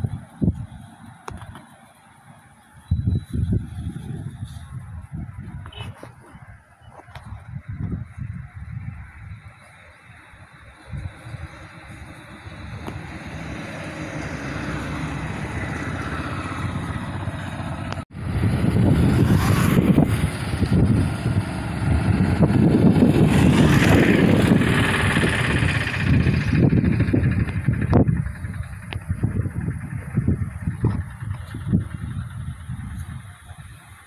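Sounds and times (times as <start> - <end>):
road traffic passing: 0.0 - 34.0
motorcycle passing close: 10.1 - 34.0.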